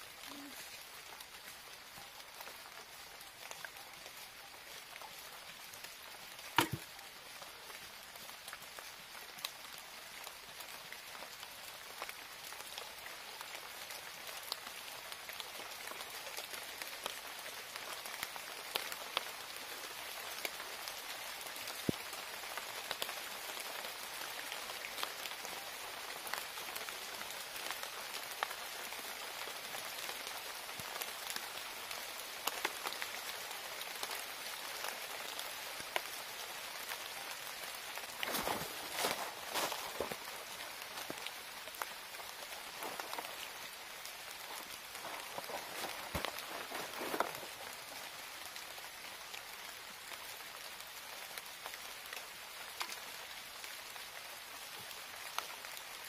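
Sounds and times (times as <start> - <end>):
outdoor hiss: 14.6 - 56.0.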